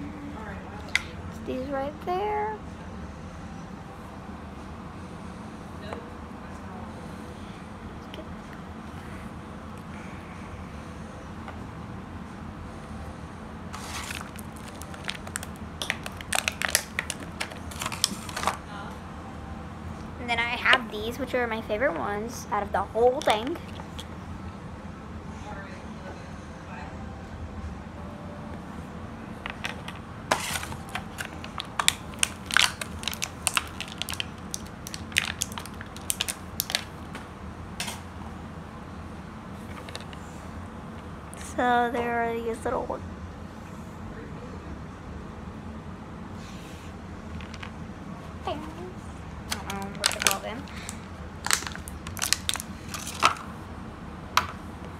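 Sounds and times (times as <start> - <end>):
plastic packaging crinkling: 13.7 - 18.6, 23.2 - 24.1, 29.5 - 37.2, 49.6 - 53.5.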